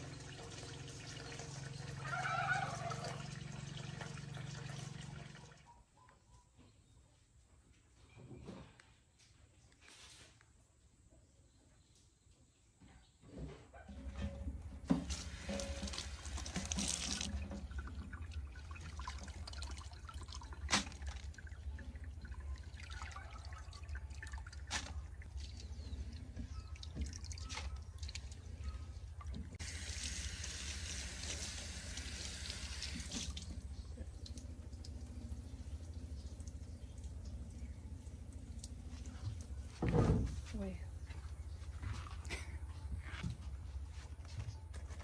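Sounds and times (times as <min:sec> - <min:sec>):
water drips: 0:15.4 - 0:39.7.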